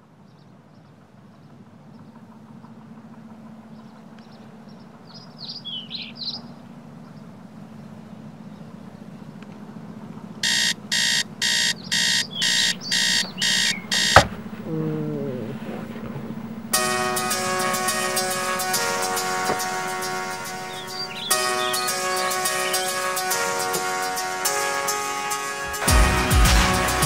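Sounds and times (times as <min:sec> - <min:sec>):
faint bird chirps: 0:03.7 - 0:07.4, 0:11.2 - 0:16.7
alarm button click: 0:10.4 - 0:14.4
alarm clock beeping: 0:10.4 - 0:14.5
low falling tone: 0:12.8 - 0:21.5.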